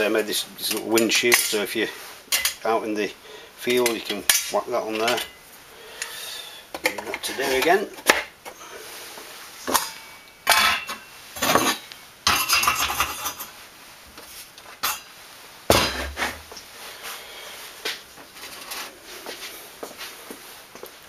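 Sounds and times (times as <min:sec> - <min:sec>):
metal stove parts clattering: 0:00.6 - 0:01.7, 0:02.3 - 0:02.6, 0:03.8 - 0:05.4, 0:09.6 - 0:13.5, 0:14.8 - 0:15.1, 0:15.7 - 0:16.4.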